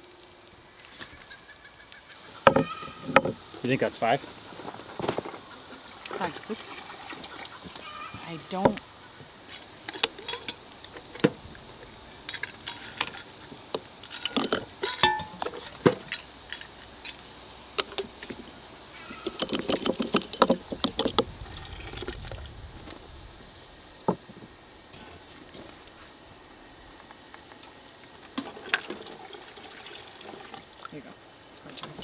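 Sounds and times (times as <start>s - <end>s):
glass and utensil clinks: 14.8s - 15.5s.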